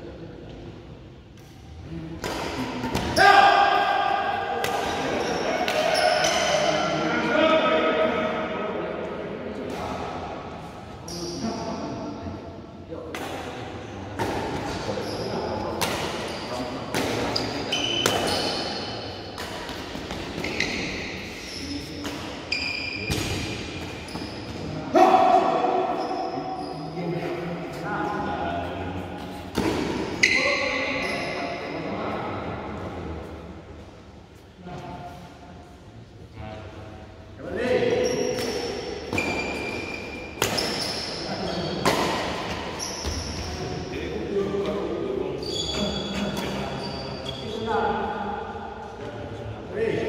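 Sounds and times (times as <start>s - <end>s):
racket hitting shuttlecock: 15.7s - 18.6s, 38.3s - 41.2s, 41.8s - 43.2s.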